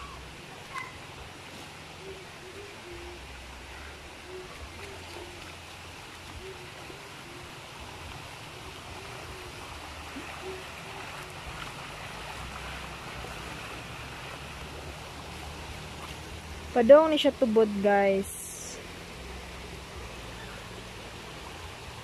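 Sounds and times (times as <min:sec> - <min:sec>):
creek water rushing: 0:00.0 - 0:22.0.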